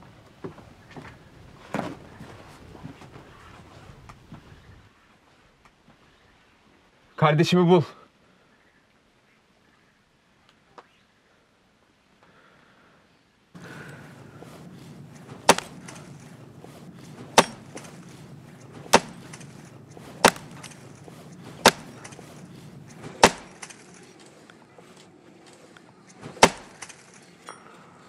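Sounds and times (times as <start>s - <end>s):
axe chopping a log: 15.2s - 23.8s, 26.3s - 27.0s.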